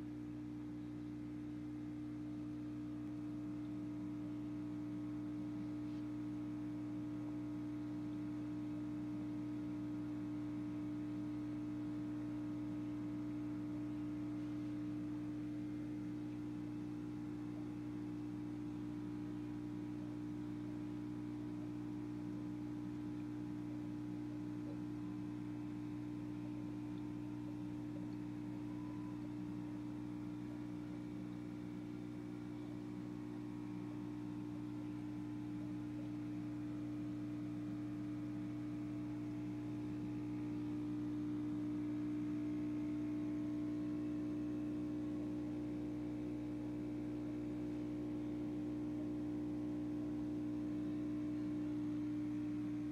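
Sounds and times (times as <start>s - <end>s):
aquarium pump hum: 0.0s - 52.9s.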